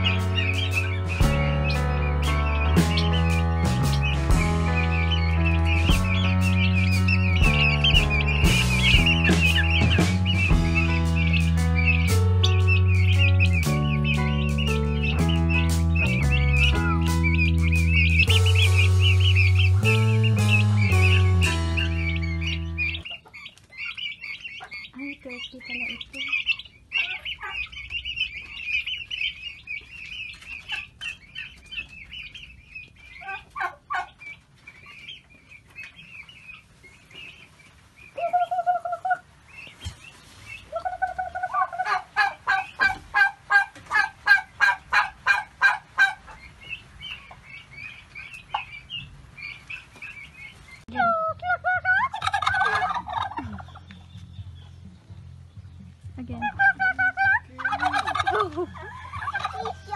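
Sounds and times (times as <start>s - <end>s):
turkey gobbling: 0.0s - 54.8s, 56.3s - 59.9s
young fowl peeping: 0.0s - 59.9s.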